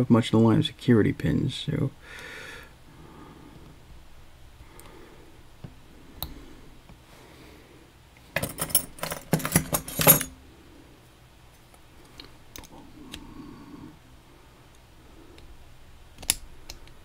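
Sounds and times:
small metal parts clicking: 8.4 - 10.3.

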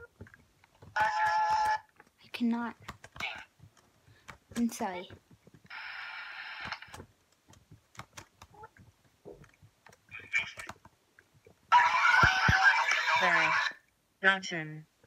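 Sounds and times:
handling clicks and taps: 0.0 - 5.7, 6.6 - 11.6.

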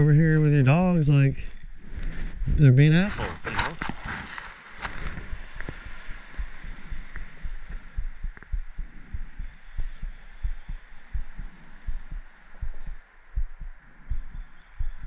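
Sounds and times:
dull low thumps: 0.0 - 3.3, 5.0 - 15.0
steady hiss: 0.0 - 15.0.

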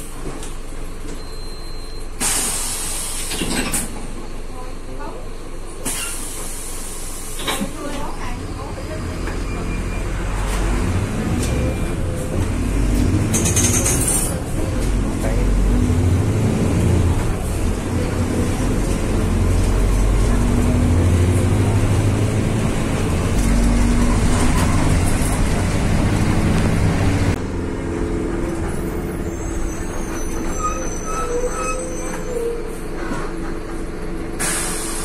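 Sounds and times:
bus engine rumble with whine: 0.0 - 35.0
short beeps: 1.2 - 2.1.

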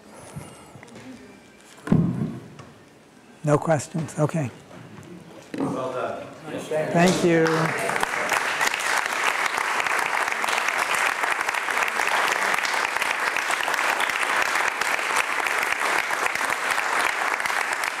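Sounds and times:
audience applauding: 7.2 - 18.0.

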